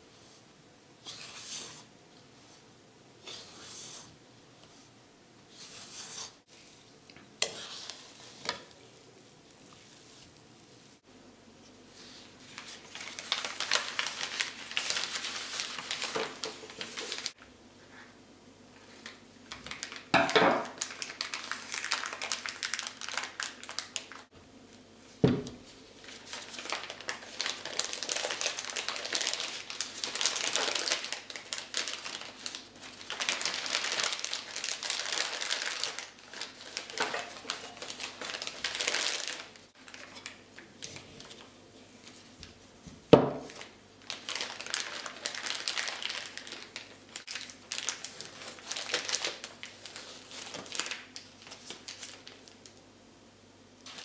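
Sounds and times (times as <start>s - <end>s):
plastic bag crinkling: 12.3s - 17.4s, 19.0s - 24.3s, 25.7s - 42.6s, 43.4s - 52.8s.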